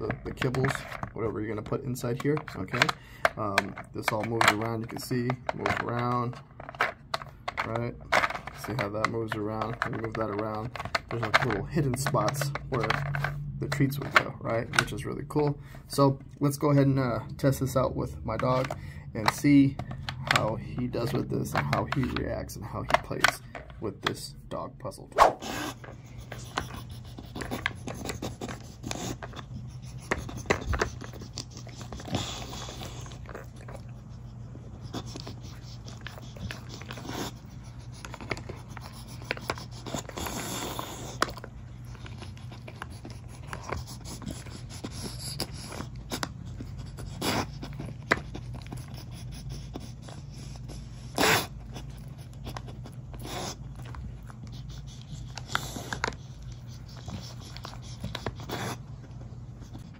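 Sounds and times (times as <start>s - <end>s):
plastic puzzle feeder clicks and scrapes: 0.0s - 25.0s, 25.7s - 34.0s, 34.8s - 49.0s.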